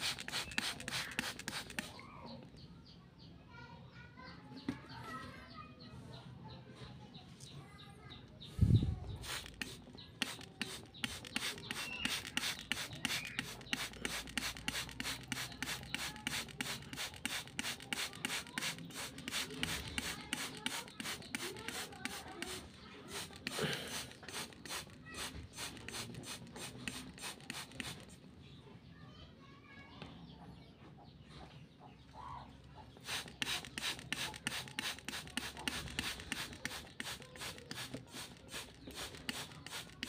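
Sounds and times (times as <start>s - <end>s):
spray bottle hissing sprays: 0.0s - 2.0s, 9.2s - 28.2s, 33.0s - 40.0s.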